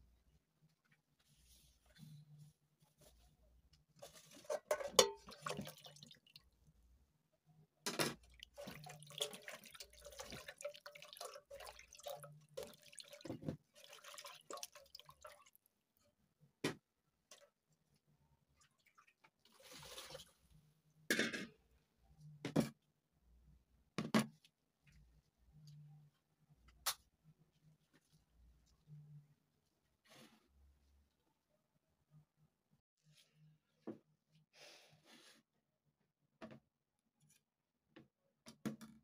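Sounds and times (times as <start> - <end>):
water splashing and dripping: 5.1 - 6.4, 8.3 - 15.6.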